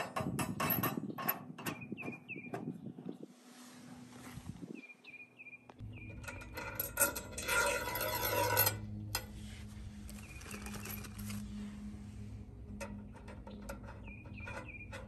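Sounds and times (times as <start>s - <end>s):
threaded rod scraping and rattling: 0.0s - 1.9s, 6.0s - 15.0s
low steady hum: 3.2s - 15.0s.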